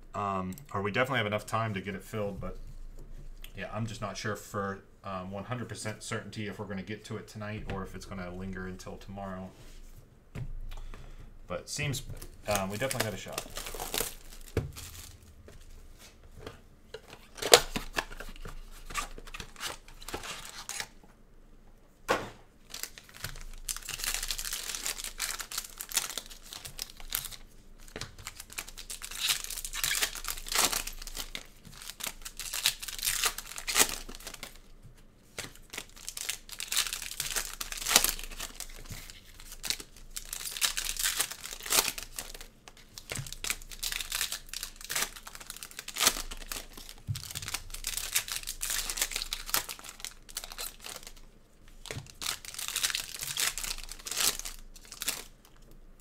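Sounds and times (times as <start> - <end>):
foil wrappers tearing and crinkling: 12.2 - 15.4, 17.1 - 21.0, 22.6 - 34.7, 35.4 - 55.6.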